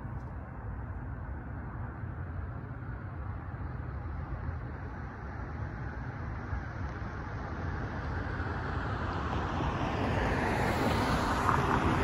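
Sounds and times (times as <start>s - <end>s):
car approaching: 2.6s - 12.0s.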